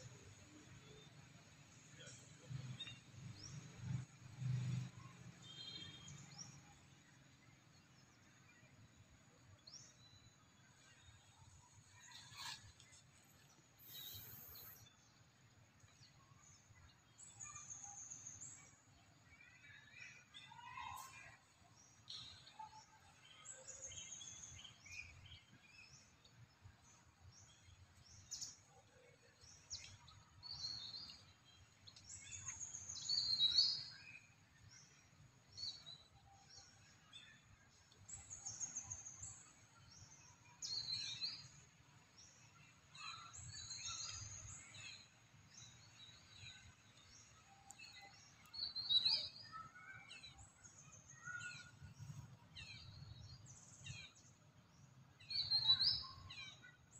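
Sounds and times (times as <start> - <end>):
birds chirping and trilling: 42.2 - 54.4.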